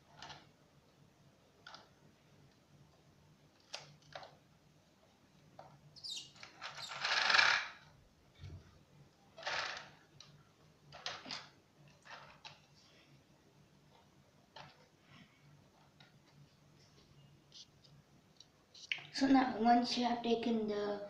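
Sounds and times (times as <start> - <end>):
plastic scraping on tile: 5.6 - 7.9, 9.4 - 10.0.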